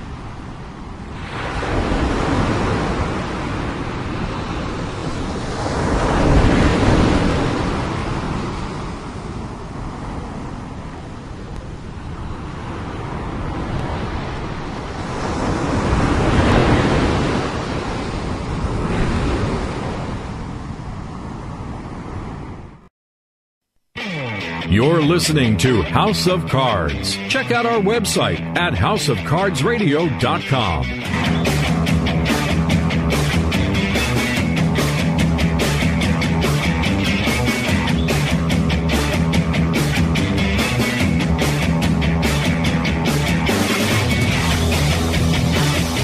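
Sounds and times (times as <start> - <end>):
waves breaking on a beach: 0.0 - 22.7, 24.8 - 30.9.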